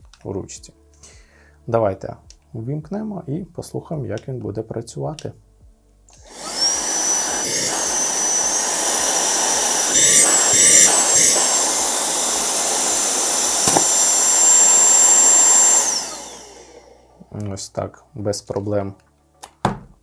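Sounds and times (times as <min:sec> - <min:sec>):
handheld vacuum motor whine: 0:06.2 - 0:17.2.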